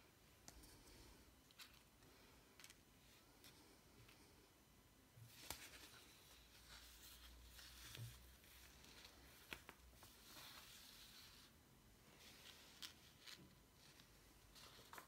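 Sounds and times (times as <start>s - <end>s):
paper rustling on cloth: 5.3s - 11.5s, 12.1s - 15.0s.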